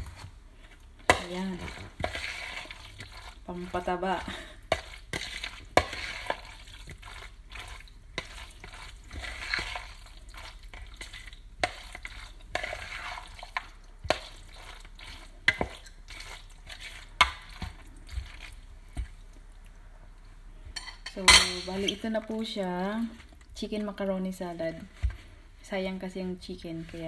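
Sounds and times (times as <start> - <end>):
fork stirring wet salad: 0.0 - 19.8, 26.4 - 27.0.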